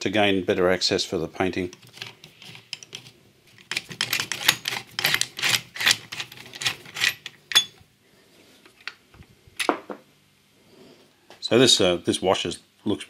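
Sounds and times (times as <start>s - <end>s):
ringing metal clink: 7.5s - 7.8s.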